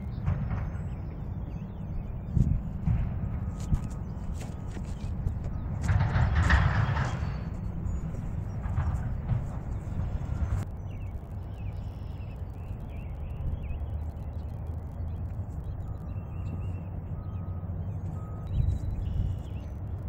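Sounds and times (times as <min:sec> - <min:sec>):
wind buffeting microphone: 0:00.0 - 0:20.0
faint bird chirps: 0:10.7 - 0:19.9.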